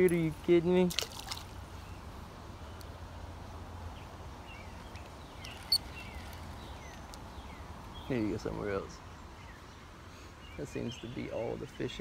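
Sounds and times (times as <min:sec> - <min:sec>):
faint bird chirps: 0:04.4 - 0:08.3.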